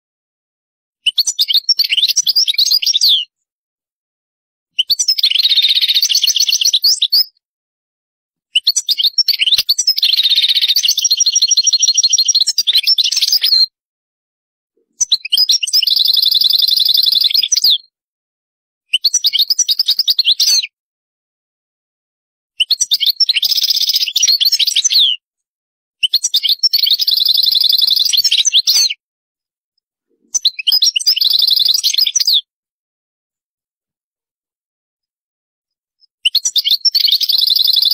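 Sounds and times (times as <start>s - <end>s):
goldfinch singing trills: 1.0s - 3.3s, 4.8s - 7.3s, 8.6s - 13.7s, 15.0s - 17.8s, 18.9s - 20.7s, 22.6s - 25.1s, 26.0s - 28.9s, 30.3s - 32.5s, 36.2s - 37.9s.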